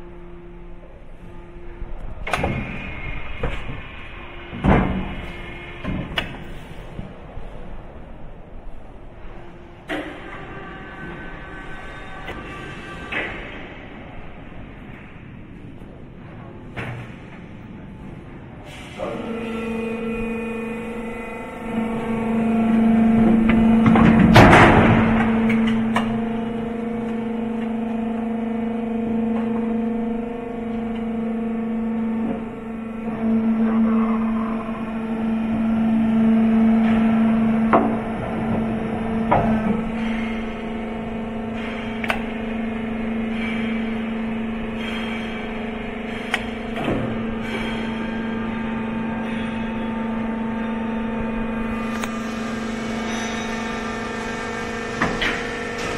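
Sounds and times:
electric gear motor humming: 0:19.3 - 0:55.9.

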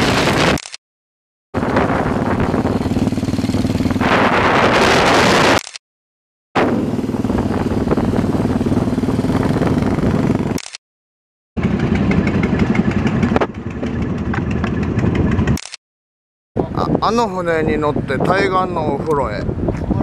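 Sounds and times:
motorcycle engines running: 0:01.6 - 0:05.5, 0:06.6 - 0:10.6, 0:11.6 - 0:15.6.

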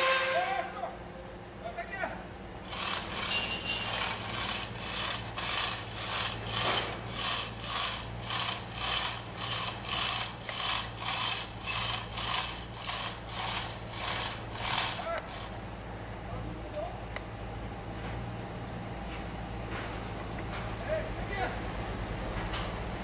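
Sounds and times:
mechanical ratcheting: 0:02.6 - 0:15.5.

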